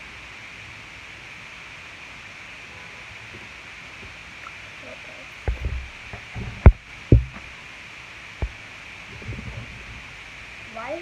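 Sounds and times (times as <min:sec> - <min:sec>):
steady hiss: 0:00.0 - 0:11.0
handling thumps and bumps: 0:05.5 - 0:07.5.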